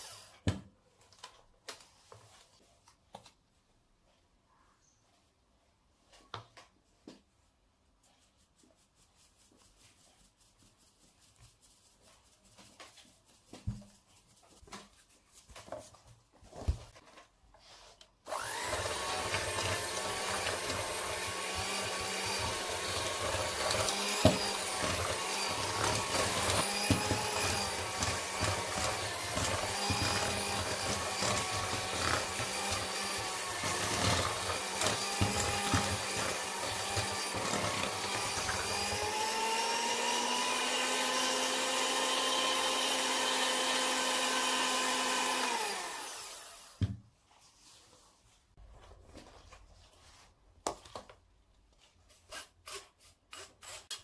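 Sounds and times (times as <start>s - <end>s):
electric hand mixer running: 18.3s - 46.8s.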